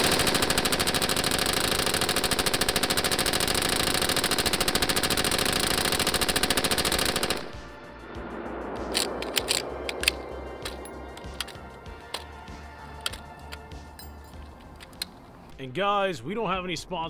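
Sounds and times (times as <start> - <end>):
machine gun firing full-auto burst: 0.0 - 7.6.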